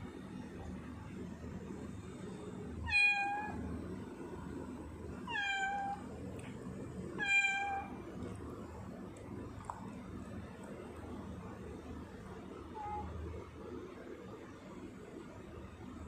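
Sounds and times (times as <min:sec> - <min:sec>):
cat meowing: 0:02.9 - 0:03.6, 0:05.2 - 0:06.1, 0:07.2 - 0:08.0.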